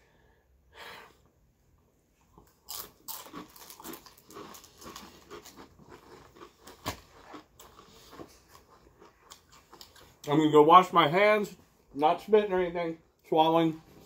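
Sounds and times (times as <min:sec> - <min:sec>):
chips crunching while chewed: 0:02.4 - 0:10.2.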